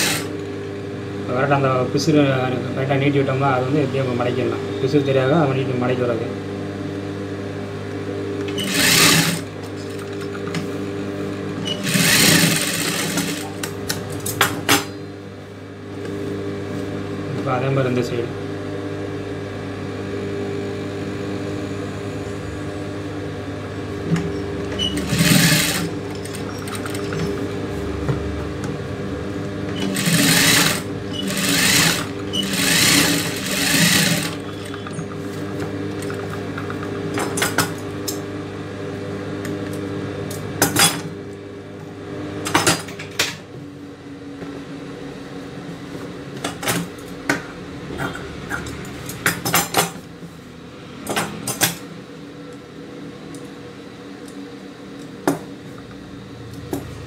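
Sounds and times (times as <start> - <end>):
sewing machine stitching: 0.0 - 0.3, 8.5 - 9.5, 11.6 - 13.7, 24.7 - 27.4, 29.7 - 34.9
steady hum: 0.0 - 36.6.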